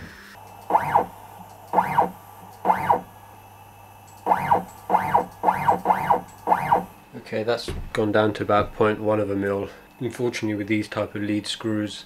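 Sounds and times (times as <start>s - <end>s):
stepper motor whine: 0.0s - 7.1s
steady low hum: 0.0s - 11.6s.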